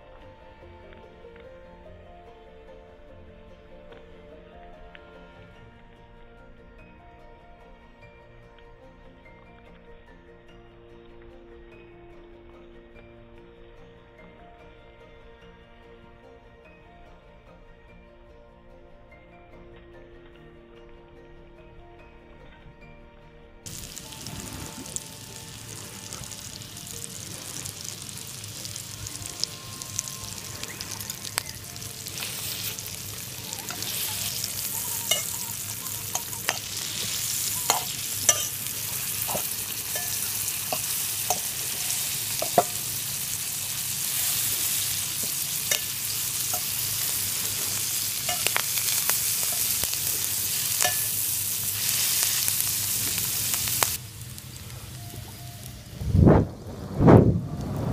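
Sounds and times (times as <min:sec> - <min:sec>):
mushrooms sizzling in a skillet: 0:23.7 - 0:55.9
metal fork scraping a pan: 0:32.0 - 0:52.9.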